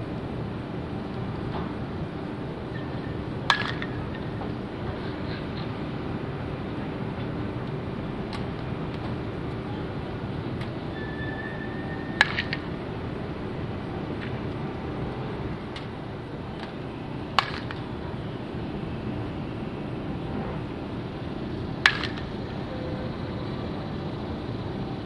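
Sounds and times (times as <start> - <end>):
distant voices: 0.0 - 25.0
crowd murmur: 4.2 - 7.1, 9.0 - 12.9.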